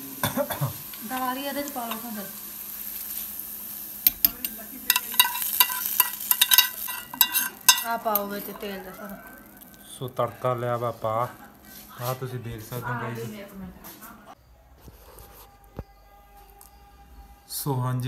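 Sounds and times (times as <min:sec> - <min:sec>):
hot oil sizzling: 0:00.0 - 0:13.2
metal spoon clinking on steel bowl: 0:04.0 - 0:08.9.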